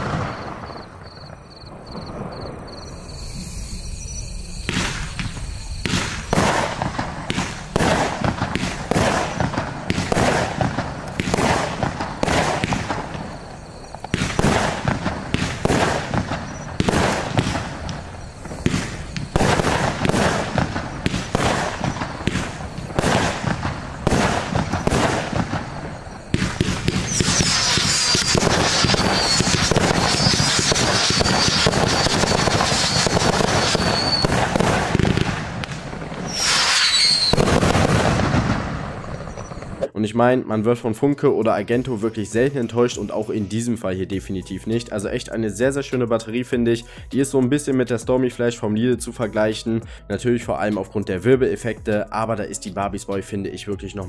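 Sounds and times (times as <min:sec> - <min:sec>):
fireworks launches and bursts: 0:00.0 - 0:40.0
dense fireworks crackling: 0:00.0 - 0:50.6.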